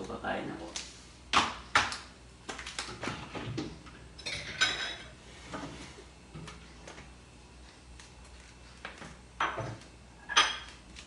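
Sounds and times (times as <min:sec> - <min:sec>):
dishes and cutlery clinking: 0:04.2 - 0:05.1, 0:10.3 - 0:10.8.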